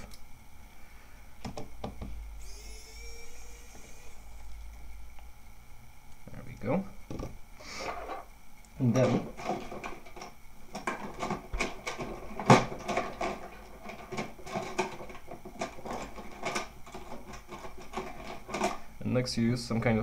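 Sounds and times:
small tools clicking and clattering: 9.0 - 18.8.

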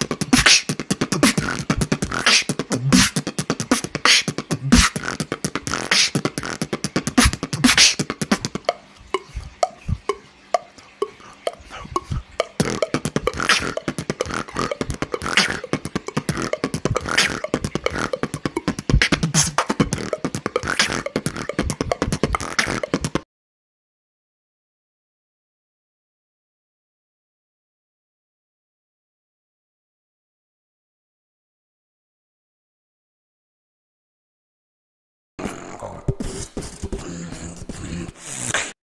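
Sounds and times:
person beatboxing: 0.0 - 23.3, 35.4 - 38.8.

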